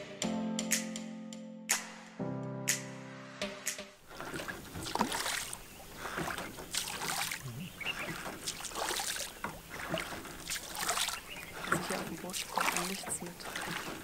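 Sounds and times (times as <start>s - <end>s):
oars splashing in water: 4.0s - 14.0s.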